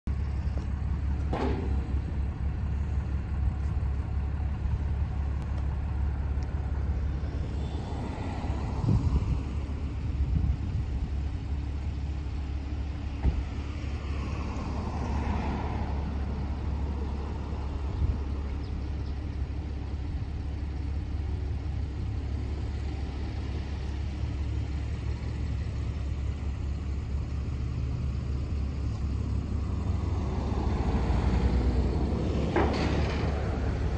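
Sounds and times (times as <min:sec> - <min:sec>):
vehicle engine idling: 0:00.0 - 0:33.9
knocks and clanks: 0:01.1 - 0:02.3, 0:32.3 - 0:33.9.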